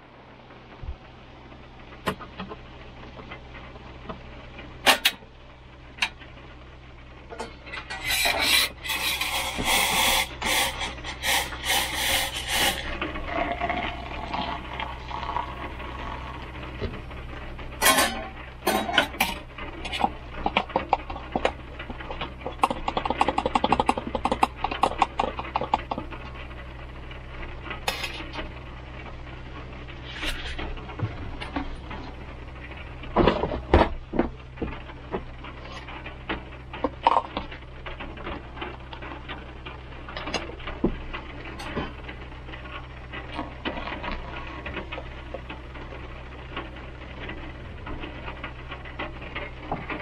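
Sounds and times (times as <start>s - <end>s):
truck engine idling: 0.0s - 50.0s
clicks and knocks of handling: 17.8s - 26.3s.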